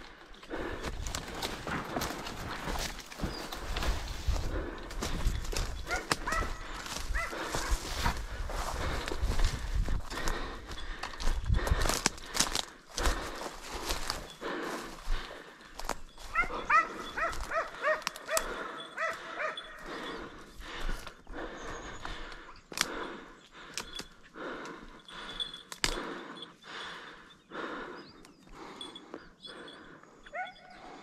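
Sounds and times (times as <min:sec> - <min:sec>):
brush crackling: 0:00.0 - 0:20.0
footsteps: 0:00.6 - 0:19.3
hound barking: 0:05.8 - 0:07.8, 0:16.3 - 0:19.9, 0:30.3 - 0:30.8.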